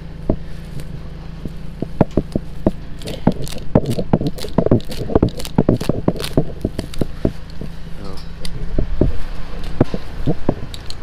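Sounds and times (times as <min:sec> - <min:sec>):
steady low hum: 0:00.0 - 0:11.0
hay crackling and snapping: 0:00.3 - 0:07.8.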